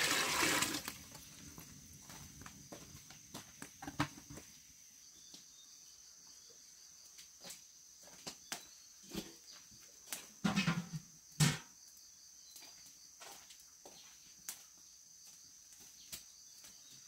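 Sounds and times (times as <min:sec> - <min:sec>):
insects chirring: 0:00.0 - 0:17.0
knocks and clatters: 0:10.4 - 0:11.7.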